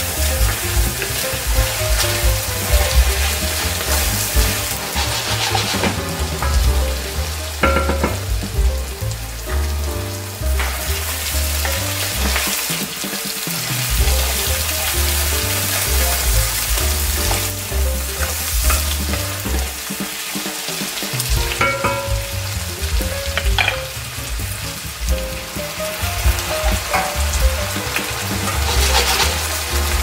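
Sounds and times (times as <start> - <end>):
vegetables sizzling in oil: 0.0 - 30.0
wooden spoon scraping a pot: 0.5 - 6.8, 26.6 - 30.0.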